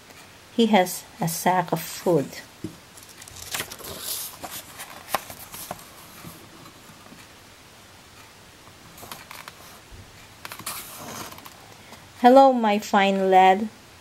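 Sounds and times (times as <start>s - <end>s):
paper pages rustling: 2.9s - 7.2s, 9.0s - 9.8s, 10.4s - 11.8s.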